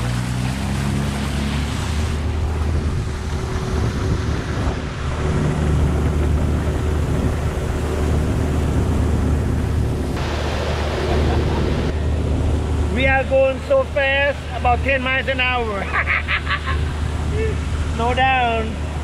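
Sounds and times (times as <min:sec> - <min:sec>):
water hissing past hull: 0:00.0 - 0:15.5
outboard motor speeding up: 0:00.0 - 0:19.0
wind on microphone: 0:01.7 - 0:14.6.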